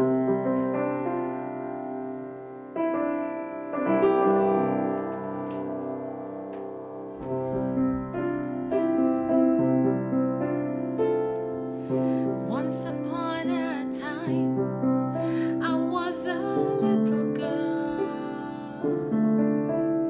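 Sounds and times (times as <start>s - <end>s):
slow piano chords: 0.0s - 20.0s
soprano singing with vibrato: 12.0s - 14.6s, 15.2s - 19.2s.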